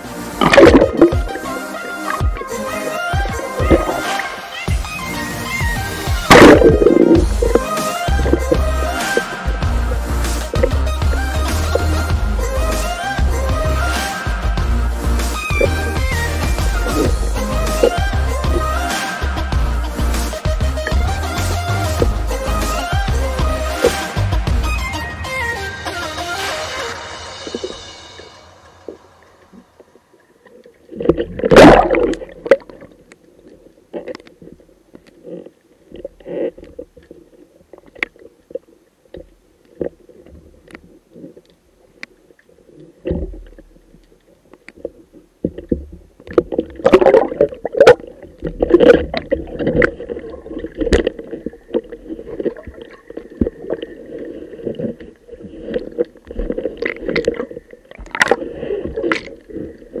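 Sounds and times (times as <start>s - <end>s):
underwater bubbles gurgling: 0.0s - 12.4s, 15.5s - 19.5s, 29.8s - 60.0s
underwater knocks and clicks: 0.4s - 1.4s, 3.2s - 4.0s, 6.1s - 9.8s, 10.5s - 11.9s, 43.0s - 54.0s, 54.6s - 60.0s.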